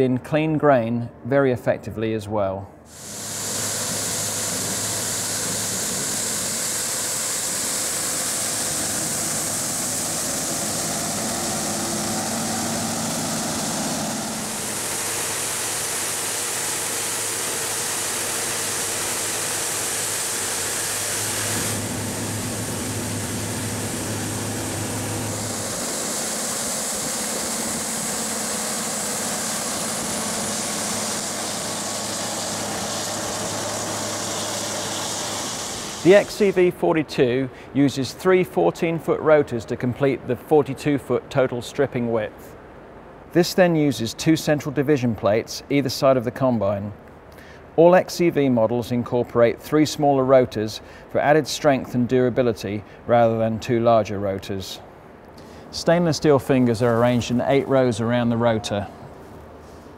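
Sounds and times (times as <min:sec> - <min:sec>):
combine harvester running: 0:02.9 - 0:36.9.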